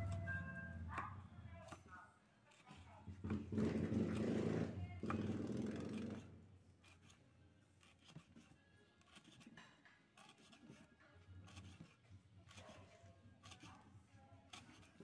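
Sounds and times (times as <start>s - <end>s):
knife chopping on wooden board: 3.1s - 6.2s, 13.4s - 13.8s.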